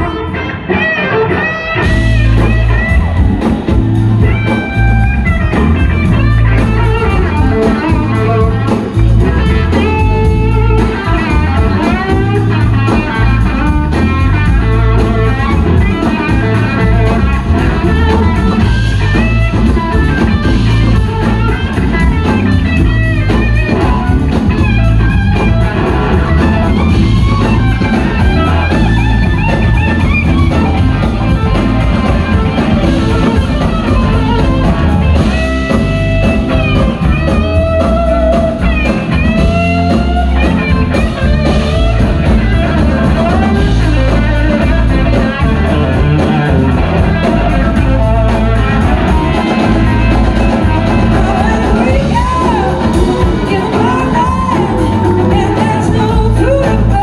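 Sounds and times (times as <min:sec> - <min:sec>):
drums and bass: 0:00.0 - 0:57.0
electric guitar lead: 0:00.0 - 0:57.0
woman singing: 0:51.0 - 0:57.0.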